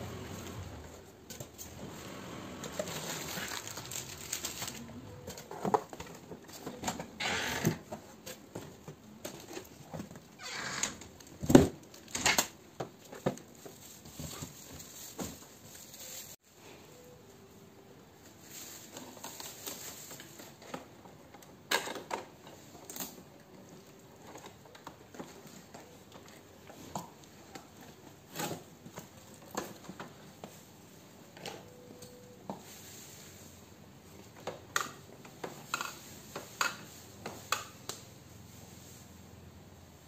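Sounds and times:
packing tape pulled off: 2.7s - 4.9s.

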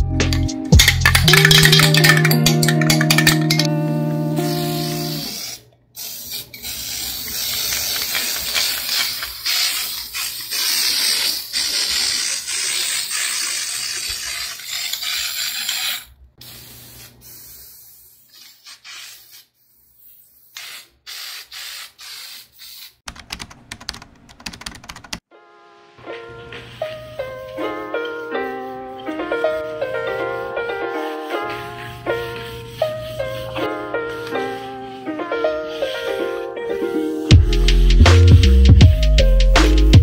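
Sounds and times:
aerosol spray can hissing: 0.8s - 23.0s, 26.6s - 37.3s
rapid clicks: 23.1s - 25.2s.

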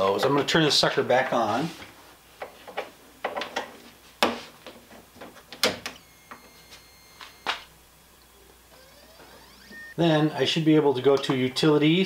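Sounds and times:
faint high printer whine: 5.9s - 12.0s.

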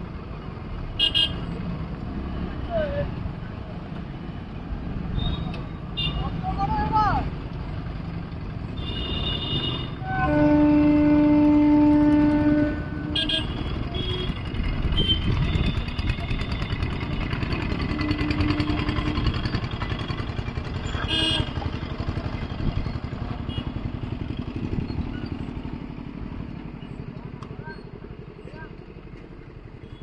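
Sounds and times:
motorcycle and car engines passing: 0.0s - 30.0s.

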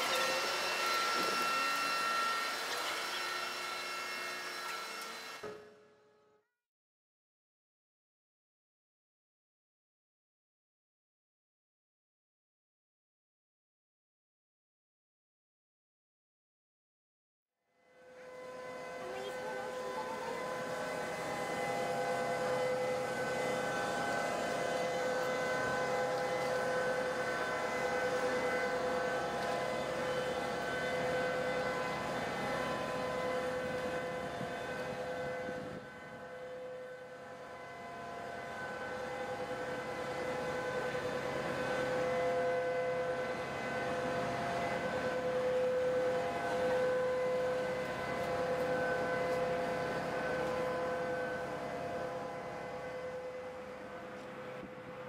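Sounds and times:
sustained drone music: 17.9s - 55.0s.

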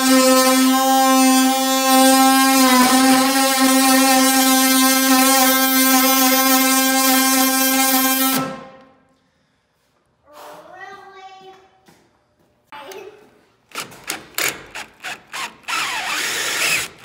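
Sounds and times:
oscillating multi-tool cutting screw: 13.7s - 17.0s.

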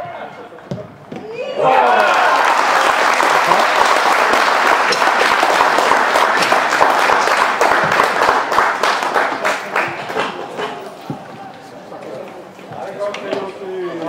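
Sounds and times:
crowd applauding and cheering: 1.6s - 10.8s.

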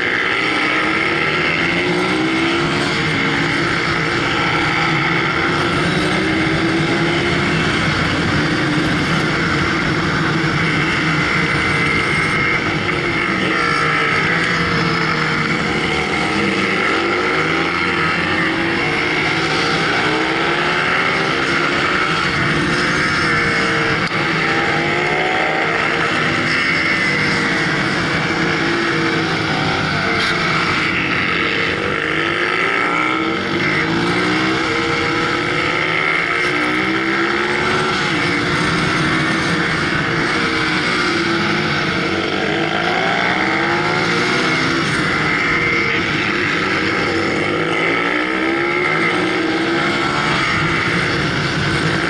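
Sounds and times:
motorcycle engine revving: 0.0s - 52.0s
wind and road noise: 0.0s - 52.0s.

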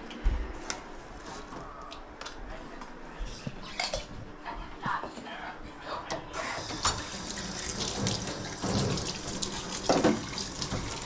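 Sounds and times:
tap water running into sink: 6.4s - 11.0s.

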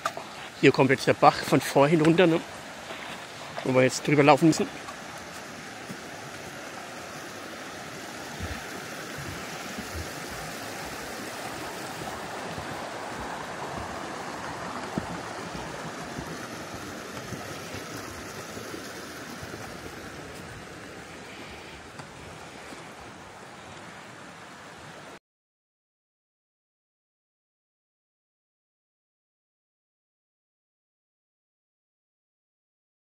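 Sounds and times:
brook rushing over stones: 0.0s - 24.7s
footsteps on wooden planks: 4.5s - 6.8s, 8.2s - 18.5s.

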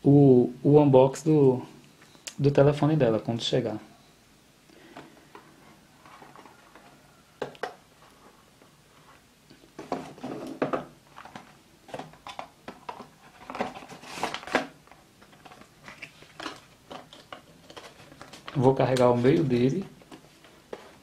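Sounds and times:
cardboard boxes being handled: 19.2s - 21.0s.

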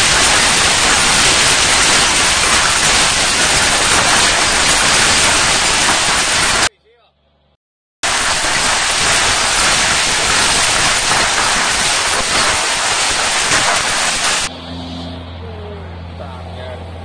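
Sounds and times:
heavy hail and rain: 0.0s - 6.7s, 8.0s - 14.5s.

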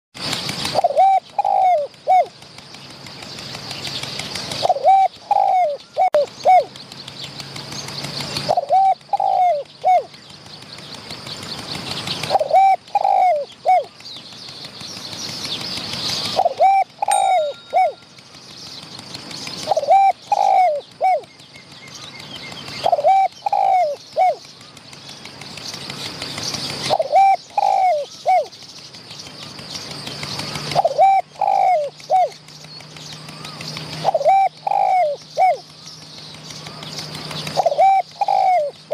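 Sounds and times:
small birds chirping: 0.2s - 38.9s
dove cooing: 0.6s - 2.4s, 4.3s - 6.8s, 8.4s - 10.2s, 12.2s - 14.0s, 16.2s - 18.0s, 19.6s - 21.3s, 22.7s - 24.4s, 26.8s - 28.5s, 30.4s - 32.4s, 33.2s - 35.7s, 36.6s - 38.9s.

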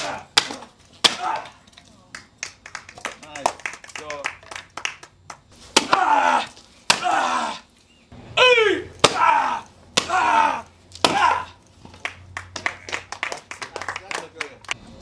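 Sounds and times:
wooden boards cracking: 0.0s - 1.6s, 10.0s - 11.4s
person shouting: 5.9s - 7.6s, 8.4s - 11.6s.

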